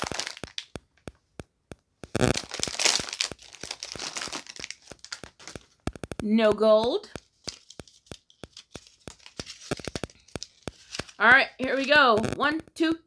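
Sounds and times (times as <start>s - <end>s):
foil wrapper ripping: 0.0s - 0.8s, 2.2s - 5.8s, 7.1s - 12.3s
foil wrapper crinkling: 0.0s - 0.9s, 2.1s - 12.4s.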